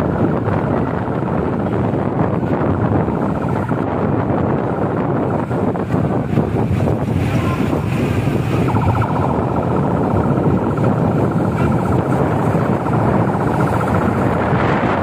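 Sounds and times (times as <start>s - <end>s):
vehicle and road noise: 0.0s - 15.0s
wind buffeting microphone: 0.0s - 15.0s
rapid buzzing tone: 6.2s - 15.0s.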